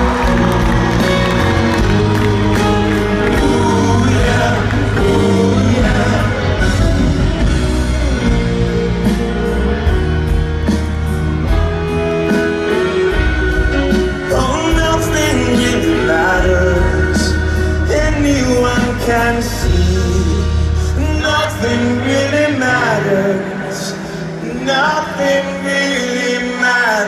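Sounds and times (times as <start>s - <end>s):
person singing: 0.0s - 7.7s, 13.9s - 27.0s
live rock band playing: 0.0s - 27.0s.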